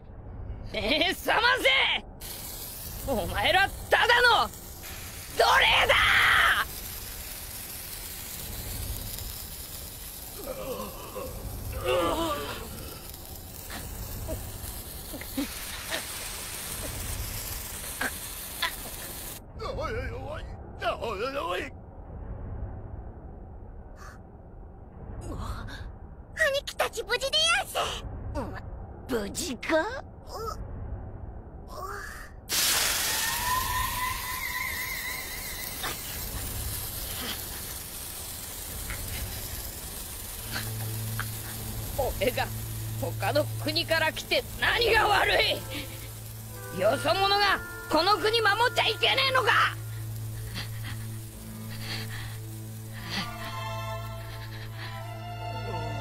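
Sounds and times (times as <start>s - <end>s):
low rumble: 0.0s - 1.1s, 19.1s - 26.5s, 27.7s - 31.8s
steady hiss: 2.1s - 19.5s, 32.5s - 56.0s
rising whistling tones: 33.0s - 36.2s.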